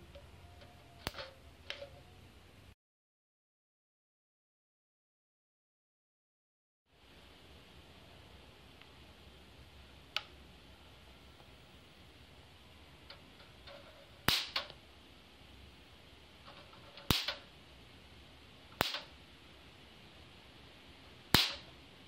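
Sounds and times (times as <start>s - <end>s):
electric spark cracks: 14.2s - 14.8s, 17.0s - 17.5s, 18.7s - 19.2s, 21.3s - 21.8s.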